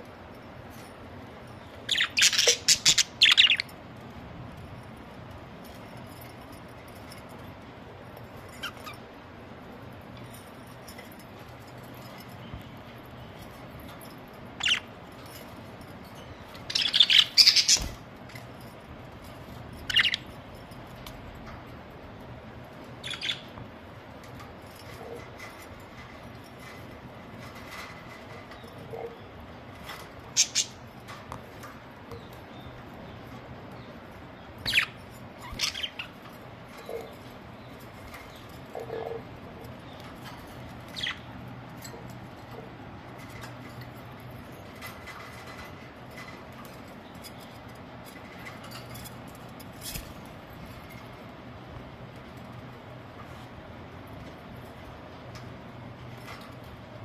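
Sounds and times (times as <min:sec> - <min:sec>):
low background hum: 0:00.0 - 0:57.0
budgerigars chirping: 0:01.9 - 0:03.7, 0:16.7 - 0:18.0, 0:19.9 - 0:20.3, 0:23.0 - 0:23.5, 0:30.3 - 0:30.8, 0:34.6 - 0:36.1.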